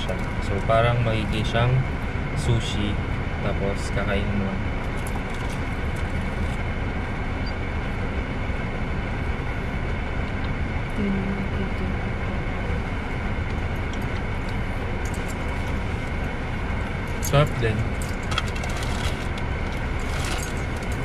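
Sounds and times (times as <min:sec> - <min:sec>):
car engine and fan hum: 0:00.0 - 0:21.0.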